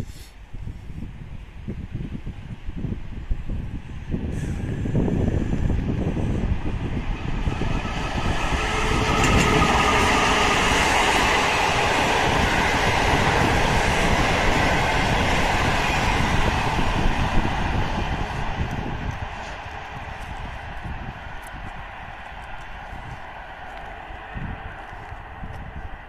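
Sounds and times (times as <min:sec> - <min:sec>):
train wheels running on rails: 0:03.5 - 0:25.9.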